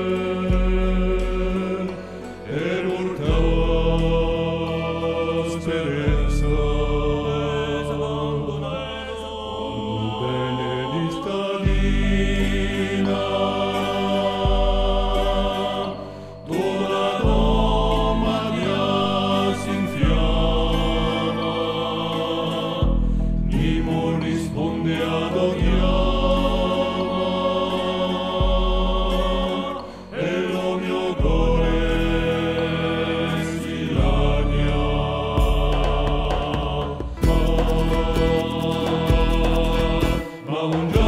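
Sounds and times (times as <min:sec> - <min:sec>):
deep bass notes: 0:00.0 - 0:09.4, 0:17.2 - 0:29.8, 0:31.2 - 0:40.3
chant-like singing: 0:00.0 - 0:41.0.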